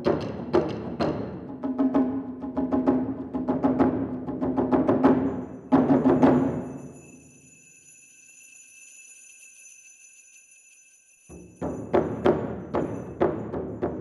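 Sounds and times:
taiko drums playing: 0.0s - 6.8s, 11.4s - 14.0s
faint high ringing tone: 5.6s - 13.3s.

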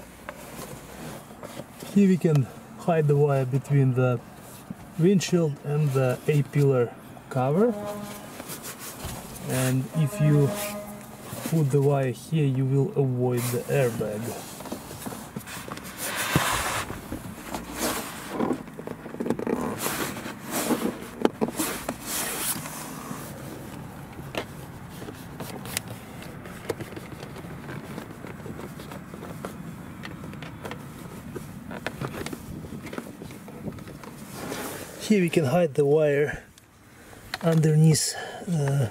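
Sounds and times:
plastic trim rubbing and scraping: 13.3s - 34.9s.

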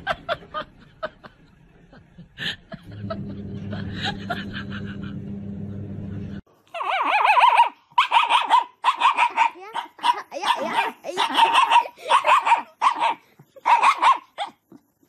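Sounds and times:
dog whining and yelping: 6.7s - 14.8s.

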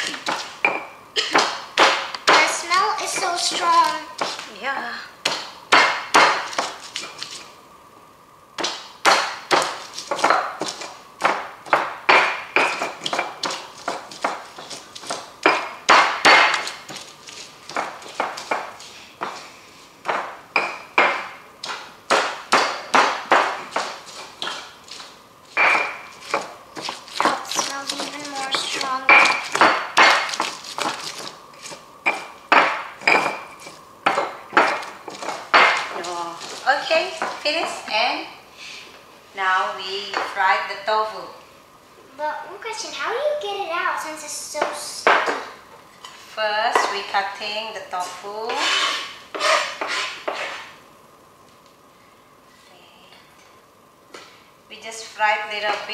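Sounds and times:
stone pestle pounding in mortar: 5.2s - 6.8s, 8.6s - 17.0s, 20.1s - 24.7s, 25.6s - 36.6s
stone pestle grinding in mortar: 48.5s - 50.8s.

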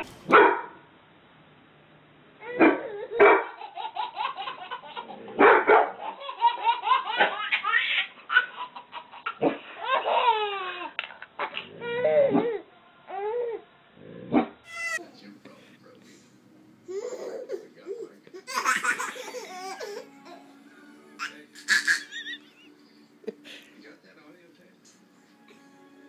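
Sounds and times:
dog barking: 0.3s - 0.8s, 2.6s - 3.6s, 5.3s - 6.0s
baby giggling: 2.4s - 5.2s, 6.0s - 12.6s, 14.7s - 15.0s, 16.9s - 20.4s, 21.2s - 22.7s.

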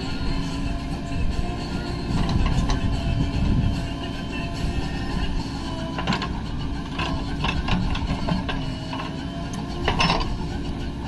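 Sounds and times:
diesel engines running: 0.0s - 11.0s
metallic clanks and knocks: 2.1s - 3.0s, 5.8s - 11.0s.

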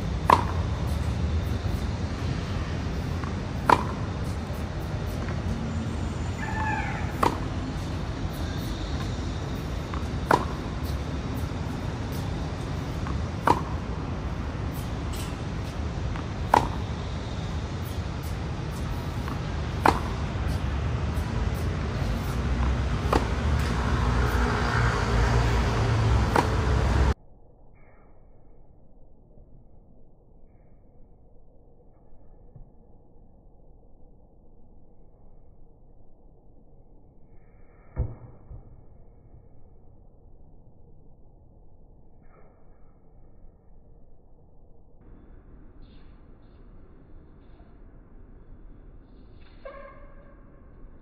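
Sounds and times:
racket hitting tennis ball: 0.0s - 5.6s, 6.3s - 27.2s
outdoor background noise: 0.0s - 51.0s.

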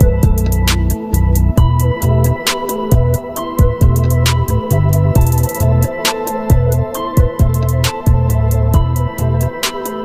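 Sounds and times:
instrumental music with deep bass: 0.0s - 10.0s.

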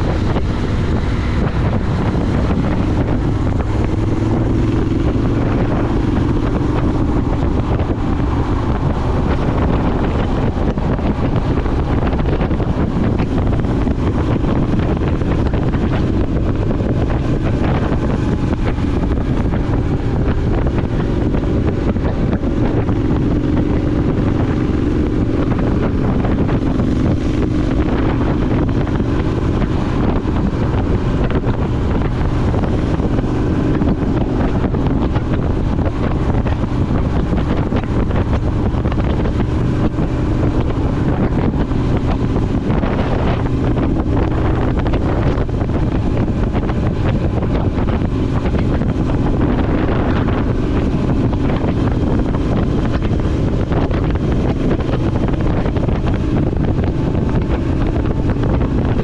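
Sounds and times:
motorcycle engine running steadily: 0.0s - 59.0s
wind buffeting microphone: 0.0s - 59.0s.

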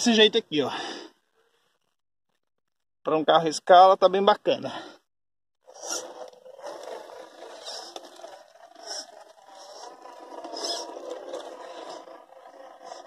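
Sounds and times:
short scraping bursts: 5.7s - 13.0s
toy car motor whine: 5.7s - 13.0s.

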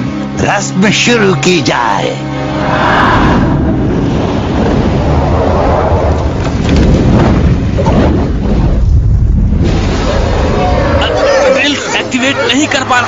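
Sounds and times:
deep low rumble: 2.4s - 11.5s.

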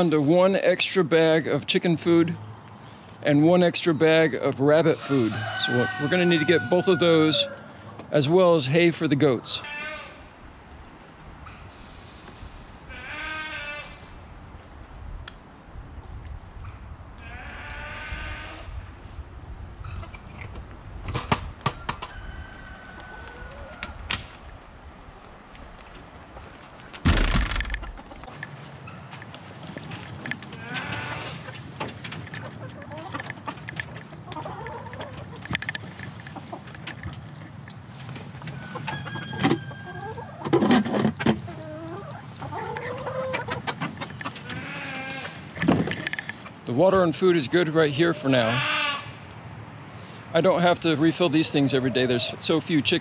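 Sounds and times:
chickens clucking: 3.3s - 10.0s, 21.2s - 24.2s, 26.2s - 49.2s, 50.4s - 53.0s
drawn-out chicken calls: 4.1s - 8.8s, 9.4s - 14.2s, 17.2s - 19.0s, 21.6s - 24.3s, 25.1s - 49.4s
rustling thump: 27.0s - 28.0s.

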